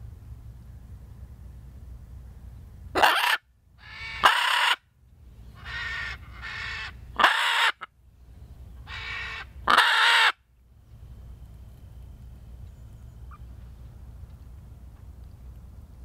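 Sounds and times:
macaw squawking: 0:03.0 - 0:04.8, 0:05.6 - 0:07.9, 0:08.9 - 0:10.4.

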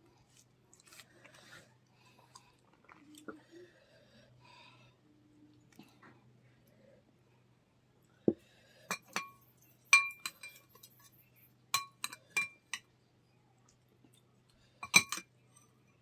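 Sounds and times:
spoon clinking against bowl: 0:08.9 - 0:12.8, 0:14.8 - 0:15.3.

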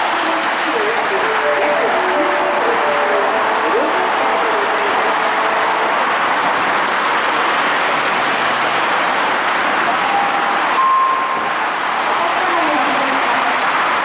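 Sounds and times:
road traffic noise: 0:00.0 - 0:14.0
short electronic tones: 0:10.0 - 0:11.5.

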